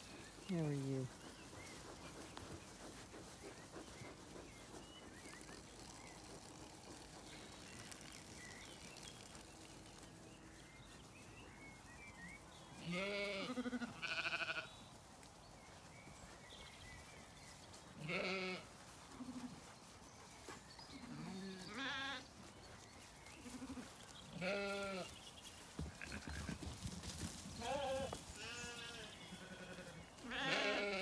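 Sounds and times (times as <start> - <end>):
sheep bleating: 12.8 - 14.7, 18.0 - 18.6, 21.1 - 22.2, 24.4 - 25.0, 27.6 - 31.0.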